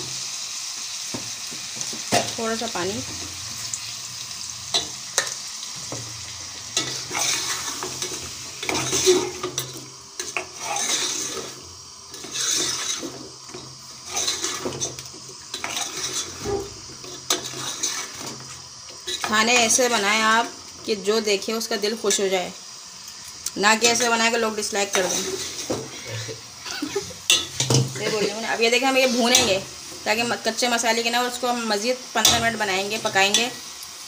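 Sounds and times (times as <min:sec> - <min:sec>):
food sizzling: 0:00.0 - 0:34.0
spoon scraping in gravy: 0:06.8 - 0:19.7, 0:24.9 - 0:28.3.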